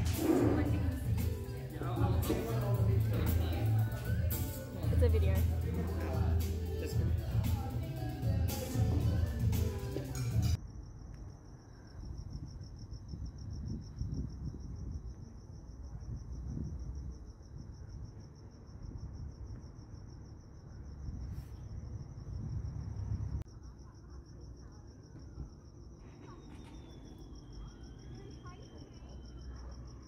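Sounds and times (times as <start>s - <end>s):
cricket trilling: 10.5s - 30.0s
low rumble: 21.1s - 23.6s.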